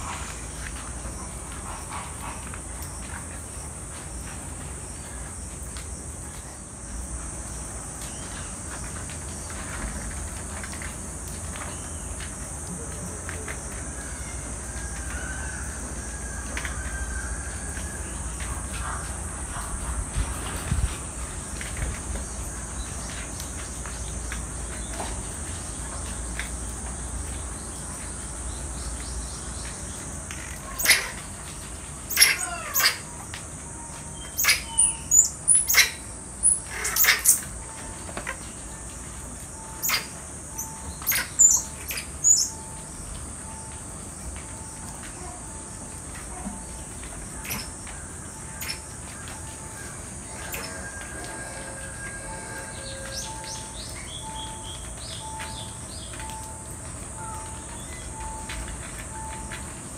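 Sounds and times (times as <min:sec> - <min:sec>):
insect drone: 0:00.0 - 0:59.9
monkeys chirping high-pitched: 0:30.5 - 0:31.5, 0:32.1 - 0:33.3, 0:34.2 - 0:37.6, 0:39.7 - 0:42.7, 0:46.3 - 0:47.9, 0:48.6 - 0:48.9.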